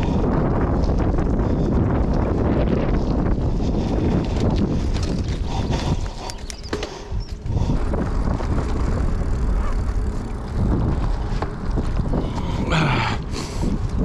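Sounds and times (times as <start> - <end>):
bicycle rattling: 0.0 - 14.0
tyre rumble: 0.0 - 14.0
wind buffeting microphone: 0.0 - 14.0
sharp clicks: 6.1 - 7.4.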